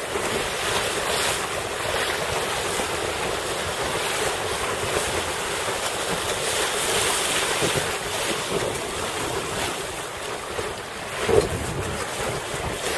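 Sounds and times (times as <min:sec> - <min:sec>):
choppy water: 0:00.0 - 0:12.9
wind on microphone: 0:07.5 - 0:12.9.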